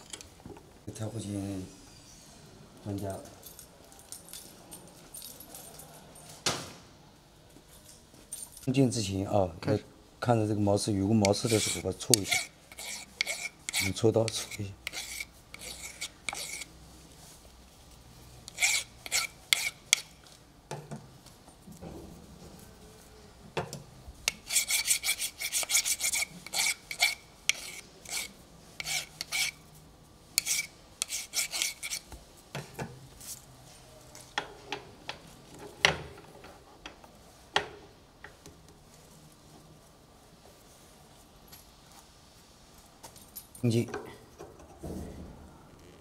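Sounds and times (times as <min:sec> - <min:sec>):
scraper scraping metal: 0:11.2 - 0:16.7.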